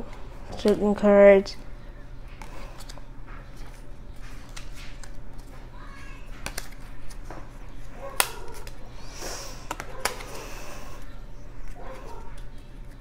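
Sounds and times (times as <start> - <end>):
trading card snaps: 6.4 - 7.3, 8.2 - 8.8, 9.7 - 10.3.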